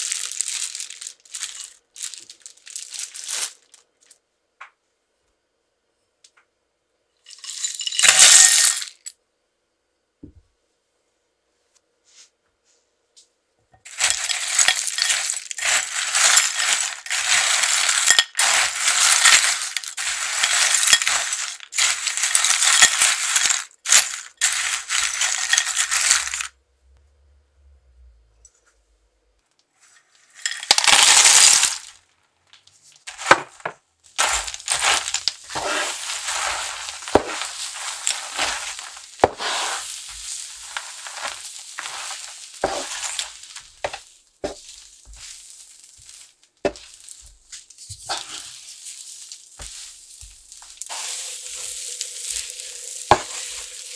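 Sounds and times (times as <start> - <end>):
nuts rattling in glass bowl: 0.0 - 3.8, 7.3 - 9.1, 13.9 - 26.5, 30.3 - 32.0, 34.2 - 47.2, 50.6 - 53.9
spatula scraping in a pan: 13.9 - 26.1, 34.2 - 46.8, 49.6 - 53.9.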